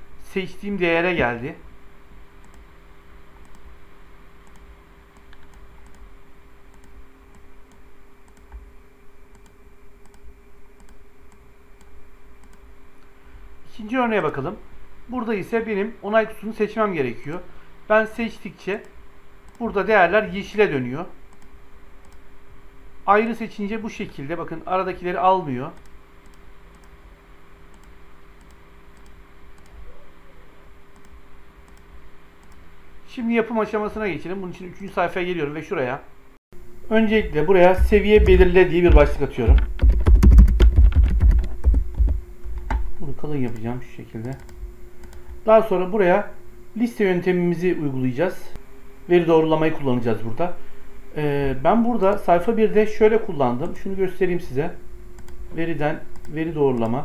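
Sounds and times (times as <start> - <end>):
faint steady hum: 0.0 - 57.0
computer mouse clicking: 2.4 - 2.7, 3.4 - 3.7, 4.4 - 6.1, 6.7 - 8.7, 9.3 - 13.1, 21.3 - 22.2, 25.8 - 27.0, 27.7 - 29.8, 30.9 - 32.6, 43.4 - 45.4, 55.2 - 55.4, 56.1 - 57.0.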